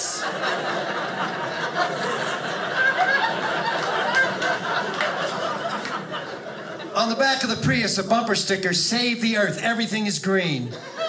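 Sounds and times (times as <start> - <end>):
audience laughing: 0.0 - 8.4, 10.6 - 11.0.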